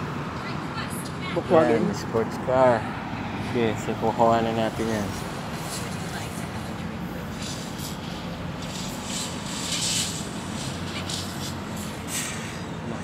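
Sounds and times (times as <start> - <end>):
road traffic engine hum: 0.0 - 13.0
tyre hiss: 7.3 - 12.7.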